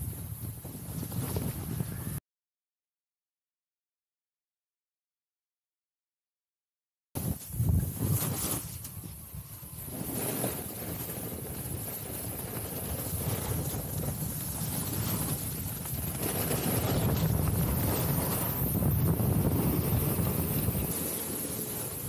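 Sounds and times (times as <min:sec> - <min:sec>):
snowboard scraping over snow: 0:00.0 - 0:02.2, 0:07.2 - 0:22.0
wind buffeting the microphone: 0:00.0 - 0:02.2, 0:07.2 - 0:22.0.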